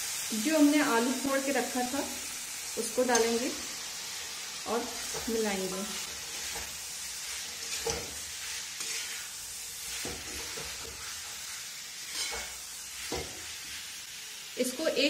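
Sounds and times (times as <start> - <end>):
frying sizzle: 0.0 - 15.0
metal spatula scraping a pan: 5.0 - 14.0.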